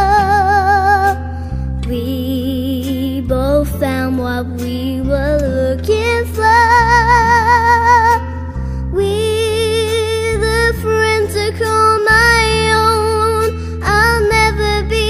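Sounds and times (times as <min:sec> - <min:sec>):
bass line: 0:00.0 - 0:15.0.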